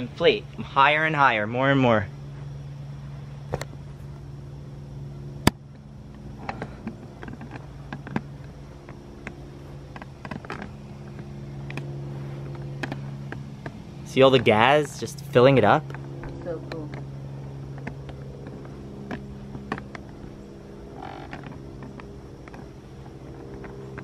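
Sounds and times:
low machine hum: 0.0s - 24.0s
small clicks and ticks: 5.4s - 13.9s, 15.8s - 24.0s.

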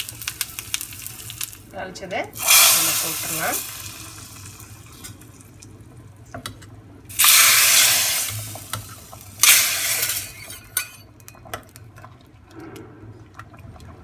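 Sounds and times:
hot oil sizzling: 0.0s - 5.8s, 7.1s - 11.0s
metal ladles clinking on pot: 9.4s - 11.6s.

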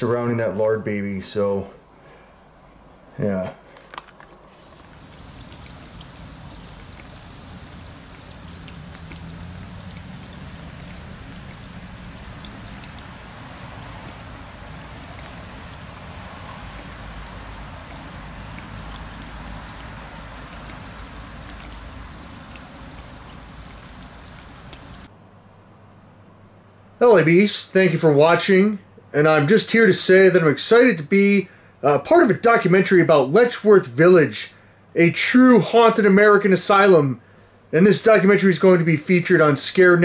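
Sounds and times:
oil sizzling and popping: 3.9s - 25.1s.

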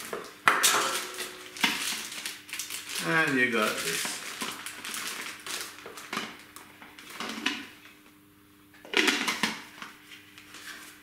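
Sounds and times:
plastic bag crinkling: 0.8s - 7.5s.

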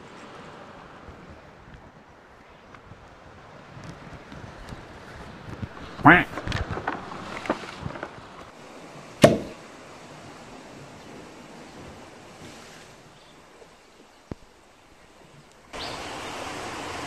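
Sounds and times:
sea surf washing: 0.0s - 17.0s
sharp knock: 9.2s - 9.6s.

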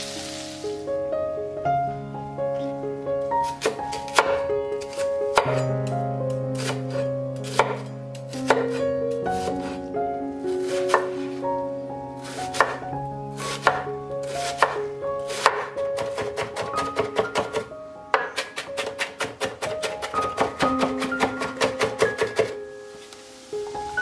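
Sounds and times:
soft background music: 0.0s - 24.0s
knife chopping on wooden board: 3.6s - 5.7s, 6.6s - 7.9s, 8.5s - 8.8s, 12.5s - 12.8s, 13.6s - 13.8s, 14.4s - 22.6s.

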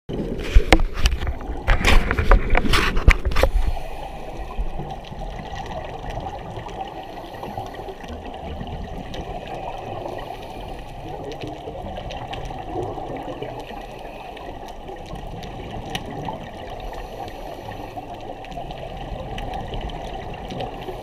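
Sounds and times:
underwater regulator bubbles gurgling: 0.1s - 21.0s.

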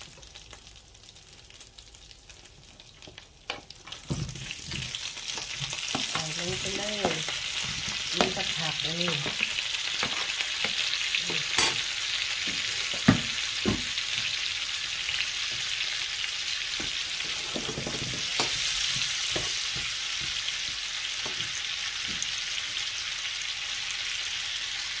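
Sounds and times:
vegetables sizzling in frying pan: 0.0s - 25.0s
spatula knocking and scraping pan: 3.5s - 11.8s, 12.4s - 14.2s, 16.8s - 22.3s.

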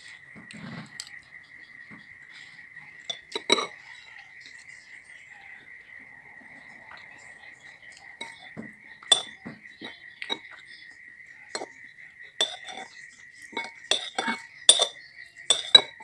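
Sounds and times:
fork clinking on ceramic bowl: 3.0s - 3.8s, 9.1s - 10.5s, 12.4s - 12.9s, 13.5s - 16.0s
high-pitched whine: 3.8s - 12.4s.

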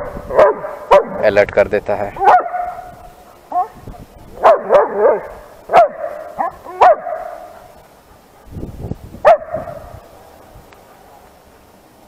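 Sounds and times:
dog barking: 0.0s - 1.2s, 2.2s - 3.8s, 4.4s - 7.7s, 9.2s - 11.2s.

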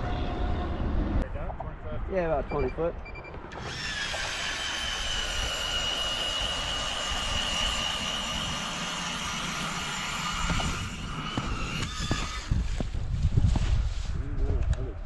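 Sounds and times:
ice auger motor whine: 3.5s - 12.8s
auger grinding through ice: 3.6s - 13.0s.

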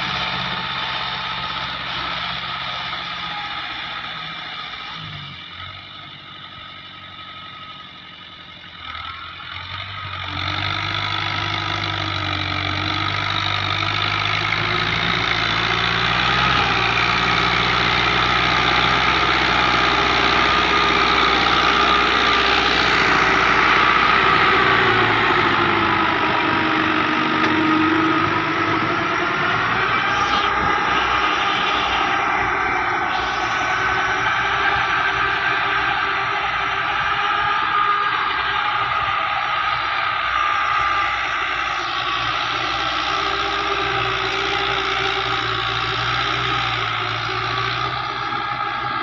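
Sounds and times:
tractor diesel engine under load: 0.0s - 49.0s
rotavator tilling soil: 10.2s - 39.6s.

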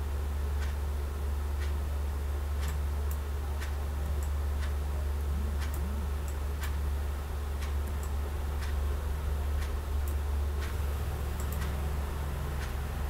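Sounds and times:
constant low hum: 0.0s - 13.0s
clock ticking: 5.5s - 6.8s, 7.6s - 8.8s, 12.5s - 12.8s.

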